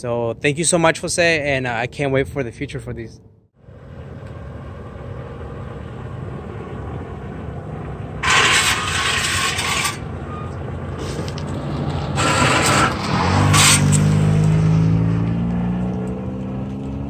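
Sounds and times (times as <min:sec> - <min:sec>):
car engine pulling away: 0:03.6 - 0:17.0.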